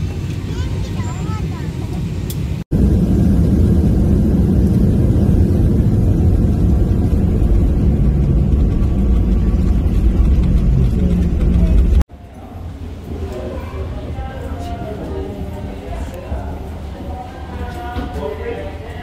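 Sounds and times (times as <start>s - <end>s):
vehicle rumble: 0.0s - 12.1s.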